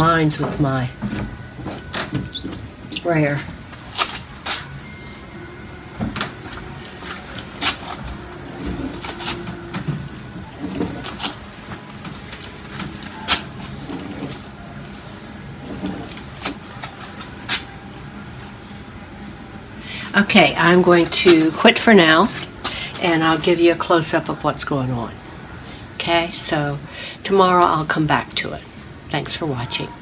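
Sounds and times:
brayer scraping wax: 0:06.5 - 0:11.4.

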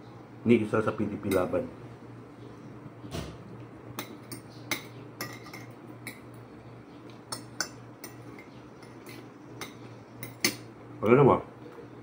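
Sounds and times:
steady low hum: 0:00.0 - 0:12.0
cutlery clinking on plates: 0:04.0 - 0:06.4, 0:07.3 - 0:10.7.

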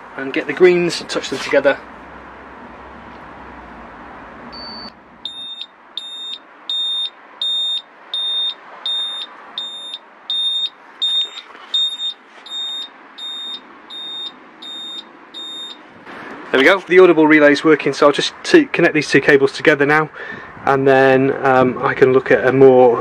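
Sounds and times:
high-pitched relay buzzer beeps: 0:04.5 - 0:15.8.

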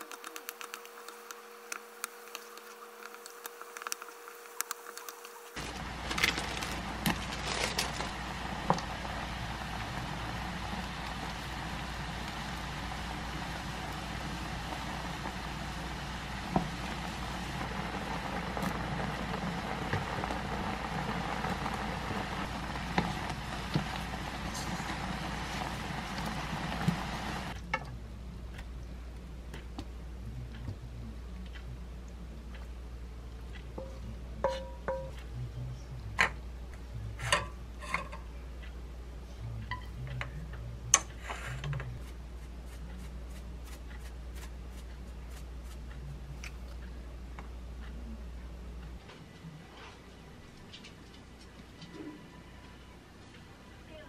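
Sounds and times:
sauce bubbling and sizzling in pan: 0:00.0 - 0:27.6
steady low hum: 0:00.0 - 0:54.0.

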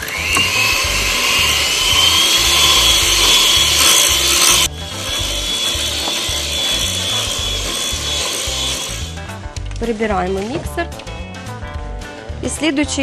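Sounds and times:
electric hand mixer whining: 0:00.0 - 0:09.4.

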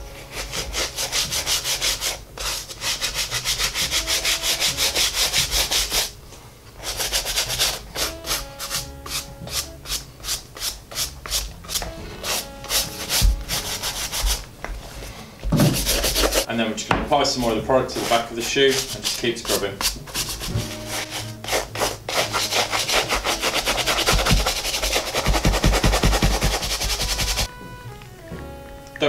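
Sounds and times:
brush scrubbing leather shoe: 0:00.0 - 0:06.2, 0:06.8 - 0:14.4, 0:15.6 - 0:16.5, 0:17.9 - 0:27.5.

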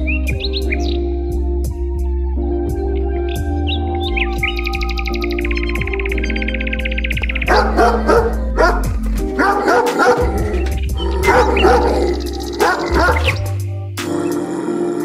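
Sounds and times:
background music: 0:00.0 - 0:15.0
dogs barking and yipping: 0:07.2 - 0:13.5.

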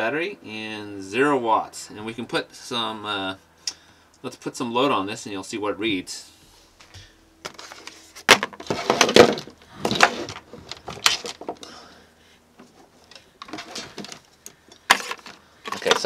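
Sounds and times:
cables and gear rustling: 0:06.9 - 0:11.8, 0:12.6 - 0:16.0.

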